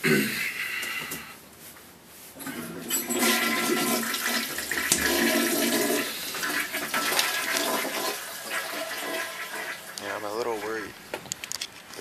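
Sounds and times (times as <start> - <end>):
toilet flushing: 2.4 - 10.8.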